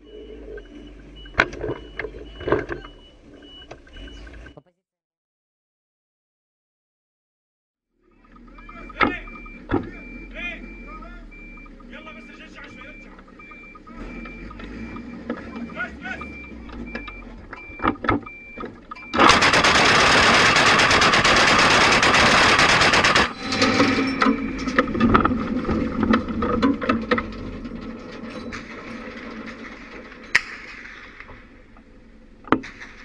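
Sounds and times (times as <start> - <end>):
clatter and knocks: 16.7 - 33.0
anti-aircraft gun firing: 19.2 - 23.7, 32.6 - 33.0.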